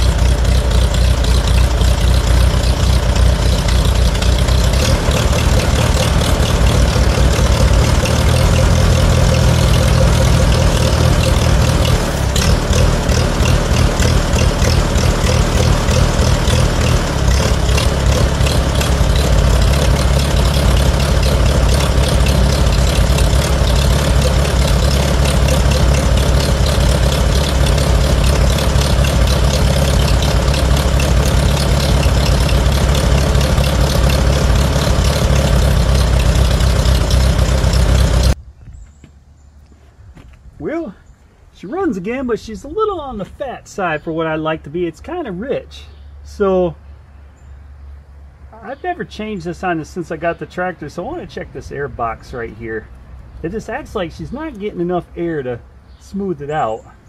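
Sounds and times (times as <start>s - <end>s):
tractor engine running: 0.0s - 38.4s, 48.6s - 56.8s.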